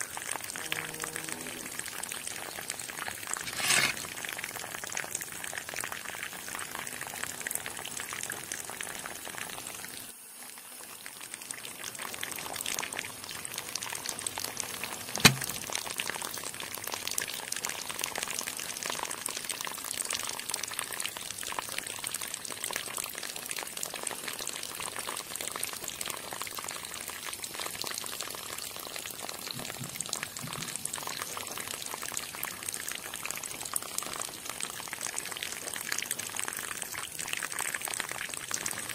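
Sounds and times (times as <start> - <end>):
sharp click: 15.2 - 15.6.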